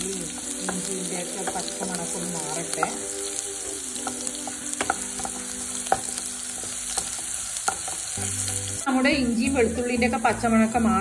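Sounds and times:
spatula tapping a pan: 0.0s - 8.4s
food sizzling in hot oil: 0.0s - 11.0s.

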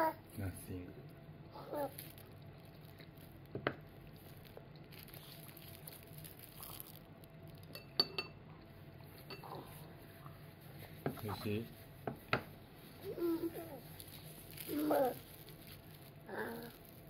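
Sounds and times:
ceramic tableware clinking: 7.7s - 8.4s, 9.2s - 9.5s.

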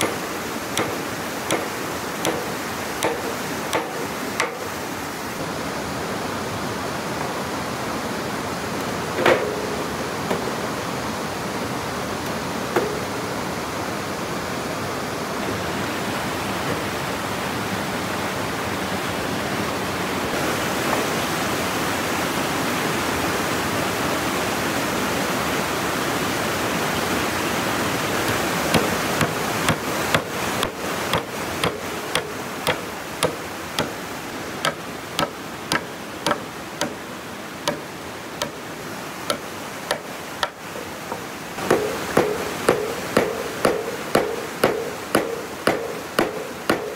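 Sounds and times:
tool striking wood: 0.0s - 4.7s, 9.2s - 9.7s, 12.8s - 13.1s, 28.3s - 34.0s, 34.6s - 37.0s, 37.6s - 38.6s, 39.3s - 46.9s.

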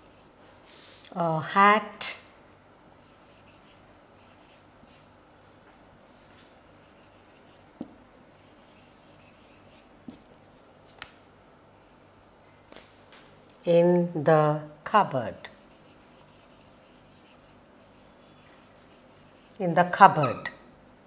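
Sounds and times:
marker pen scraping on whiteboard: 6.3s - 10.6s, 15.4s - 20.6s.

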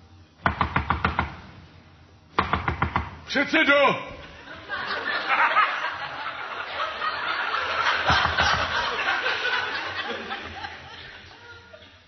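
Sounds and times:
audience laughter: 4.2s - 12.0s.

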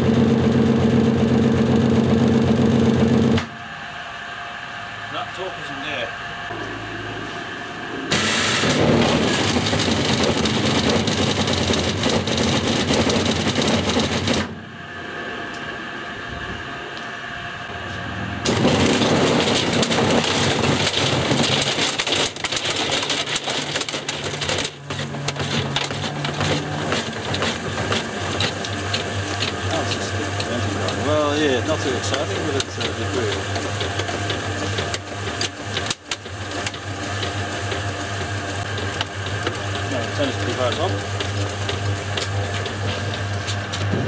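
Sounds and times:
motor hum: 0.0s - 44.0s
debris clattering in a washing machine drum: 8.2s - 14.5s, 18.5s - 44.0s.

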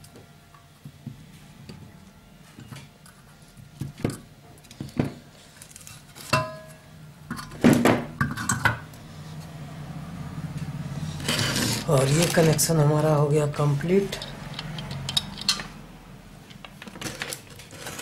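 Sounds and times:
metal parts knocking and clinking: 14.1s - 15.8s.

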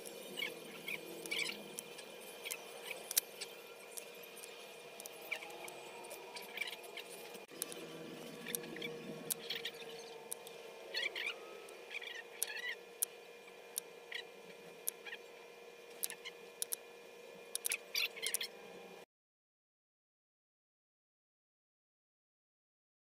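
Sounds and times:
faint steady hum: 0.0s - 19.1s
small clicks: 15.9s - 16.8s, 17.5s - 18.5s.

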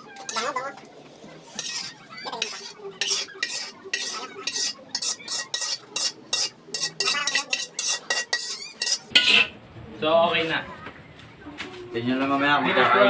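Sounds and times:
metal spoon scraping a wok: 0.0s - 0.7s, 1.4s - 9.6s.

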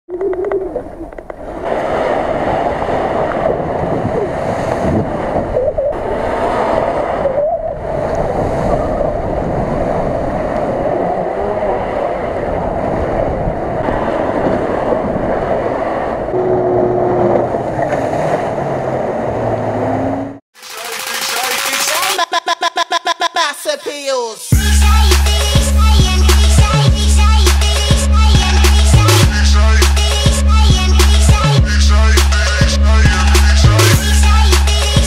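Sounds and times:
wind on microphone: 0.1s - 19.5s
tyres churning through mud: 10.7s - 20.4s.

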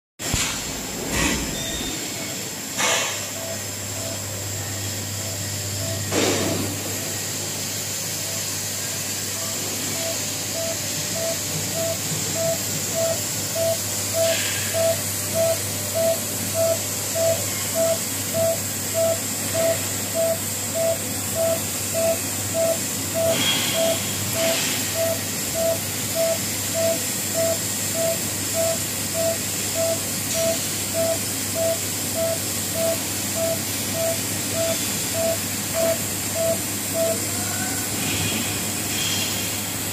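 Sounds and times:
welding machine hum: 0.3s - 39.9s
short pulsing tone: 9.4s - 37.7s.

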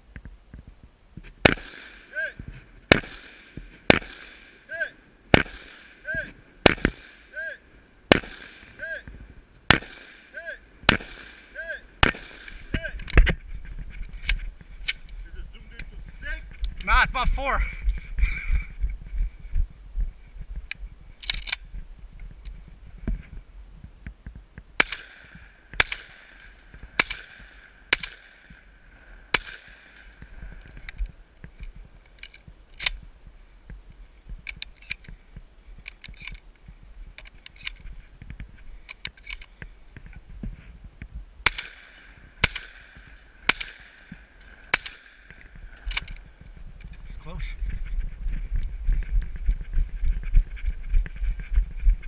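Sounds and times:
shotgun shots: 1.4s - 7.5s, 8.1s - 13.0s, 24.8s - 28.7s, 29.3s - 30.2s, 41.4s - 46.1s
shells loading clicks and rattles: 21.2s - 21.6s, 24.8s - 28.4s, 29.3s - 33.0s, 34.4s - 35.1s, 35.8s - 36.6s, 37.2s - 37.8s, 38.8s - 39.5s, 41.4s - 47.0s.

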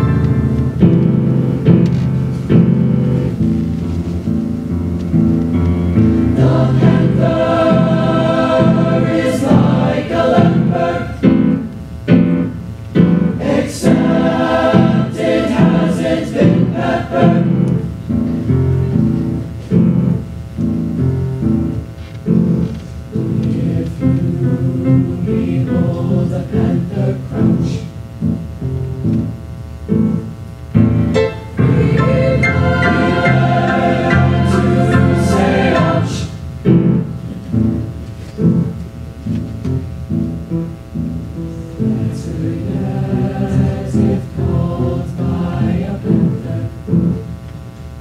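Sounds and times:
chamber choir singing: 6.3s - 11.6s, 13.3s - 18.0s, 23.2s - 27.9s, 31.2s - 36.5s, 41.8s - 47.2s.

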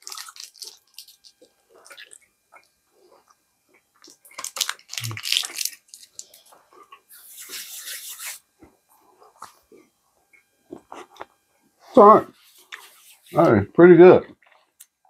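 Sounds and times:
candy wrapper crinkling: 0.0s - 2.2s, 4.0s - 6.5s
chewing: 0.0s - 7.7s.

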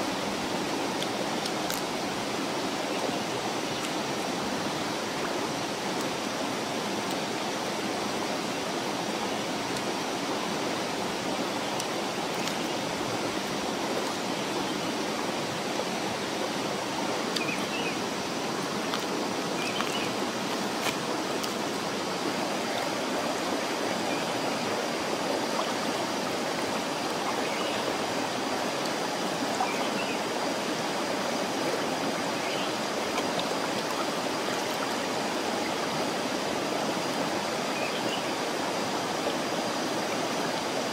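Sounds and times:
stream rushing over stones: 0.0s - 40.9s.

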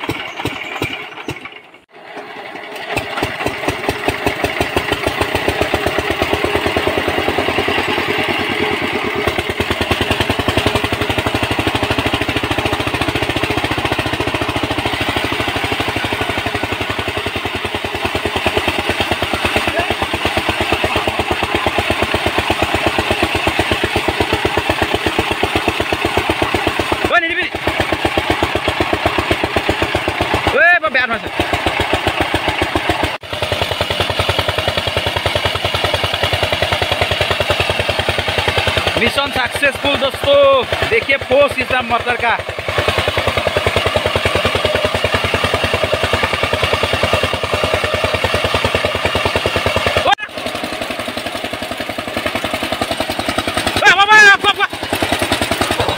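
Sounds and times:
diesel engine chugging: 0.0s - 55.9s.

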